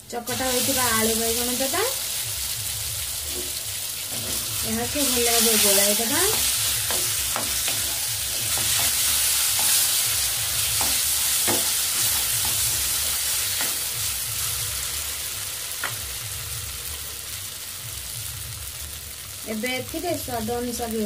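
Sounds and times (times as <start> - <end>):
food sizzling in hot oil: 0.0 - 21.0
wooden spatula stirring: 3.2 - 12.7.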